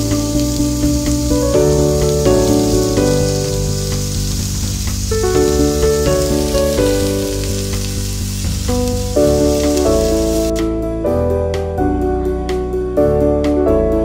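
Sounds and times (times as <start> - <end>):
meat sizzling in grill pan: 0.0 - 10.6
background music sustained notes: 0.0 - 14.0.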